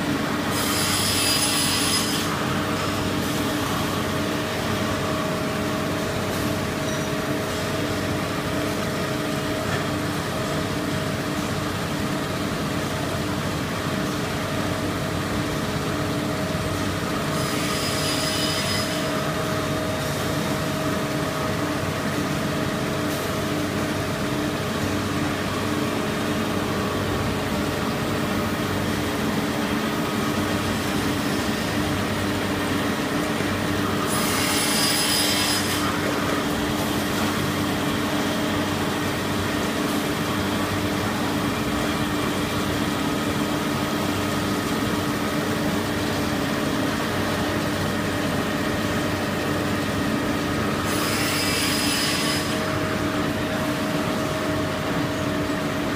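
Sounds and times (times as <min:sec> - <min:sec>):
saw blade cutting paper tube: 0:00.5 - 0:03.5, 0:17.3 - 0:19.2, 0:33.8 - 0:36.8, 0:50.8 - 0:52.7.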